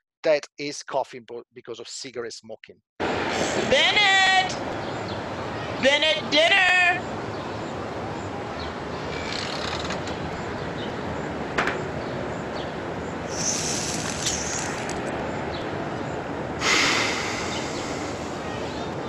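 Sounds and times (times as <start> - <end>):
outdoor background hiss: 3.0 - 19.0
dog exhaling sharply: 13.3 - 14.9, 16.6 - 18.4.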